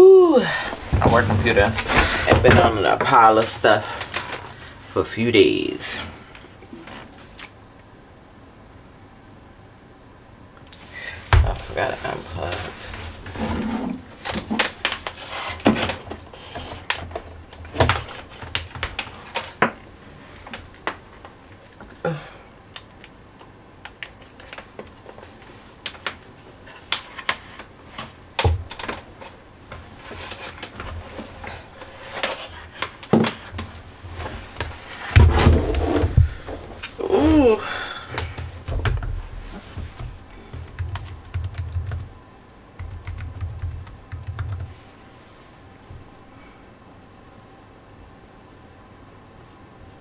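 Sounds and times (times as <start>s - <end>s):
heavy thumps: 0.7s - 3.1s, 33.1s - 37.5s.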